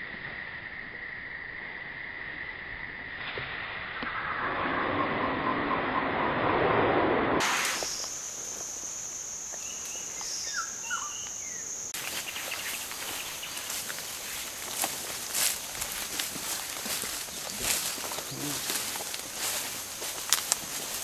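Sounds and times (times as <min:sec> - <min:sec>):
swish through grass: 0:07.4 - 0:08.1, 0:12.0 - 0:21.0
high-pitched insect drone: 0:07.4 - 0:21.0
bird chirps: 0:07.7 - 0:15.0, 0:16.4 - 0:19.0
footsteps through tall grass: 0:12.0 - 0:21.0.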